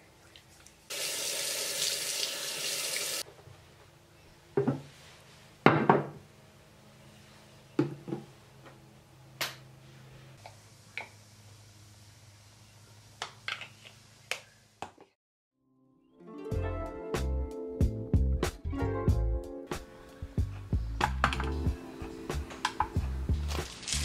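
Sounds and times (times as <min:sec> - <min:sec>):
faucet running: 0:00.9 - 0:03.2.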